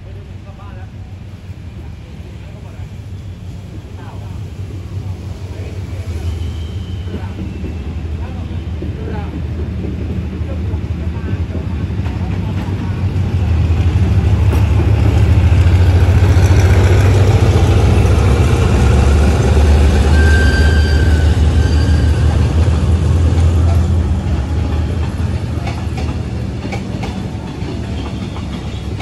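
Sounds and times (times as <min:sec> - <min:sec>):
train wheels clacking on rails: 0:06.3 - 0:29.0
locomotive engine drone: 0:12.4 - 0:28.0.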